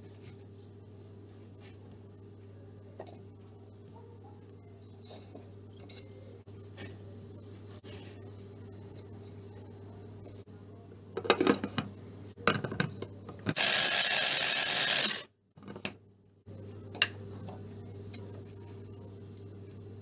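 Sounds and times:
electric chopper grinding: 13.5s - 15.3s.

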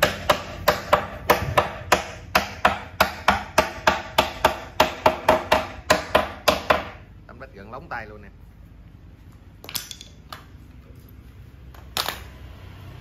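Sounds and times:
hammer striking wooden panels: 0.0s - 7.0s.

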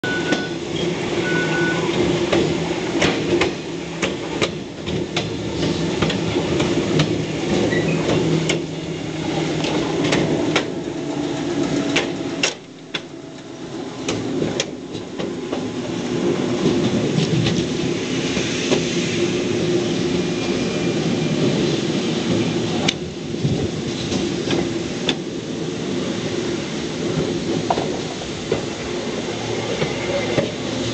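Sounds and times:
train low hum: 0.0s - 30.9s
train wheels clacking over rail joints: 0.1s - 13.4s, 27.0s - 28.8s.

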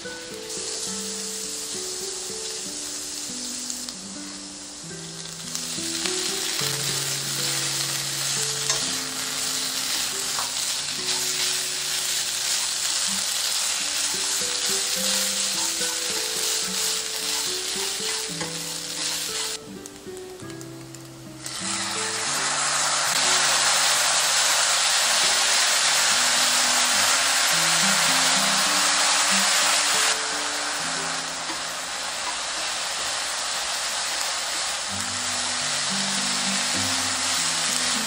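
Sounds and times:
food sizzling in oil in a frying pan: 0.0s - 38.0s
soft background music: 0.0s - 38.0s.

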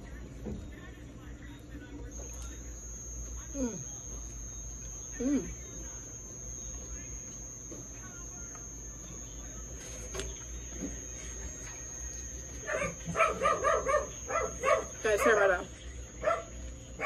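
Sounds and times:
steady low hum: 0.0s - 17.0s
dog barking rapidly: 12.7s - 15.0s, 16.2s - 16.6s.

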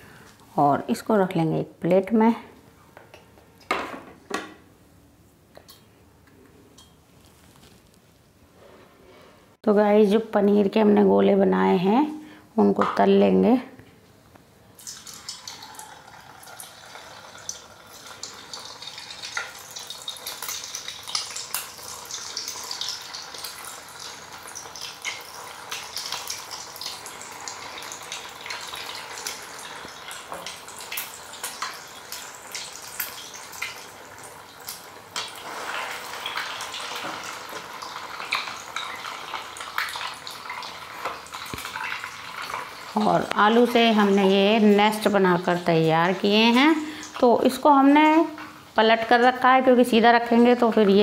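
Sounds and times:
deep-frying sizzle with pops: 14.8s - 48.6s.

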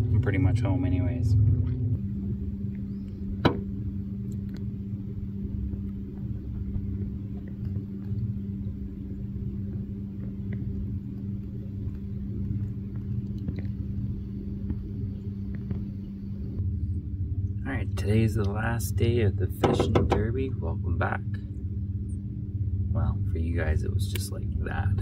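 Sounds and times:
boat motor running: 0.0s - 25.0s
sharp knock: 3.4s - 3.7s, 19.6s - 20.2s.

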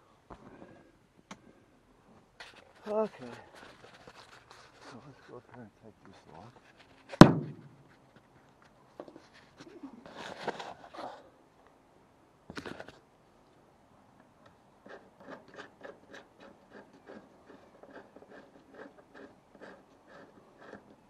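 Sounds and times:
camera handling knocks and rustle: 7.2s - 7.9s.

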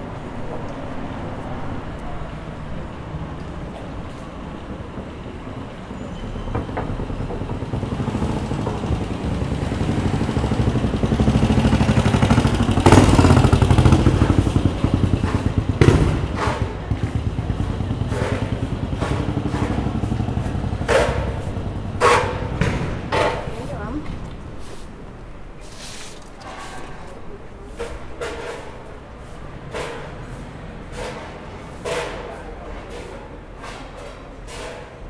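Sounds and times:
vehicle engine passing: 6.7s - 24.8s
sharp knocks: 12.4s - 23.6s.

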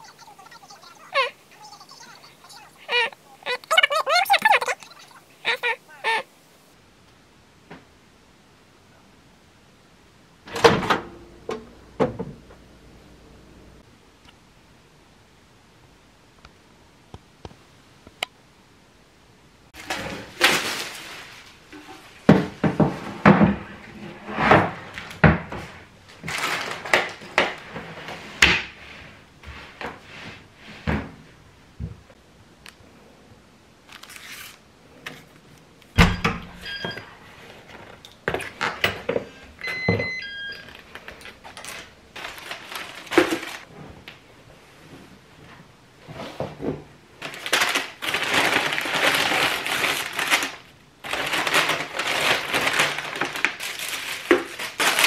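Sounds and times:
rustling: 19.8s - 30.9s, 40.6s - 55.0s.

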